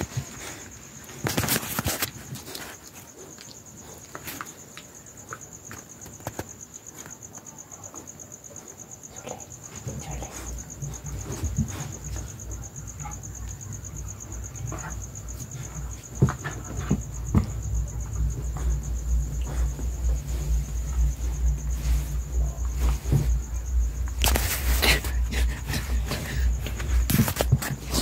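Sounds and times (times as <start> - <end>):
crickets chirping: 0.0 - 28.0
handling noise rumbling: 13.9 - 28.0.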